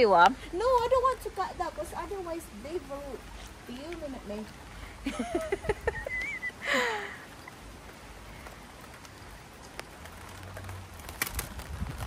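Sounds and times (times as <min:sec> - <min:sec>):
steady rain hiss: 0:00.0 - 0:12.0.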